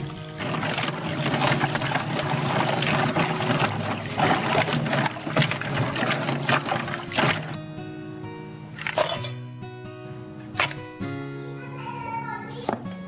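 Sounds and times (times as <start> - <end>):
tap water pouring into metal pot: 0.0 - 7.6, 8.7 - 9.3, 10.6 - 10.8
water splashing over shells: 0.0 - 7.6, 8.7 - 9.2, 10.6 - 10.8.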